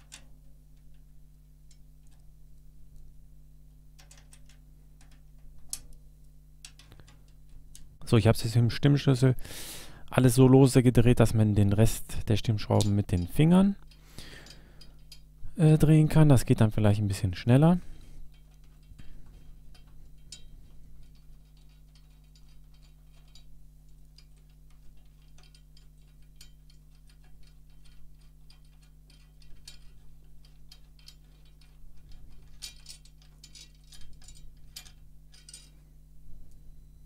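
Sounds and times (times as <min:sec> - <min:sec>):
drum tension rods clicking: 0:00.0 - 0:02.3, 0:04.0 - 0:06.0, 0:11.1 - 0:35.8.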